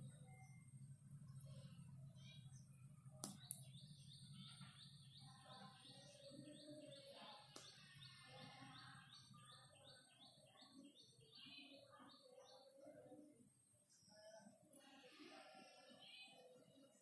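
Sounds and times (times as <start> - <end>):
bird chirping: 0.0 - 17.0.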